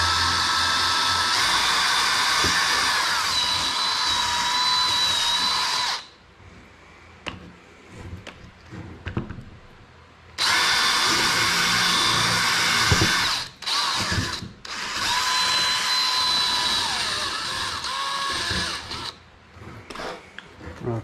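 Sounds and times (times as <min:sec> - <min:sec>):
cordless drill driving screws: 0:00.0 - 0:06.1, 0:10.4 - 0:19.2.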